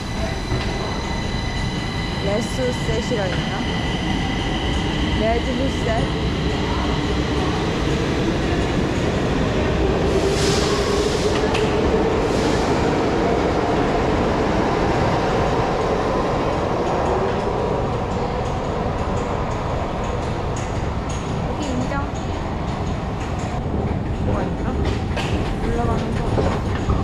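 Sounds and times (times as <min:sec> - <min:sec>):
train rumble: 0:00.0 - 0:27.0.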